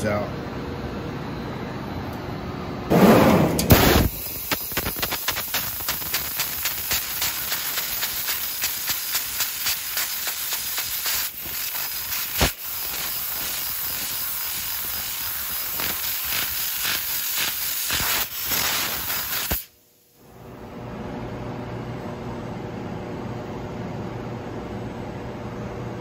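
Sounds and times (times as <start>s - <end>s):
laser cutting pops: 3.6s - 9.1s.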